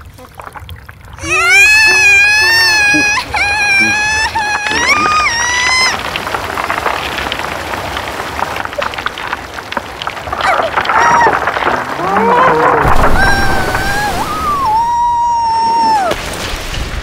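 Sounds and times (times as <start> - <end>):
crackling rain-like patter: 0.0 - 17.0
cartoon voice moaning: 1.2 - 6.0, 10.9 - 16.2.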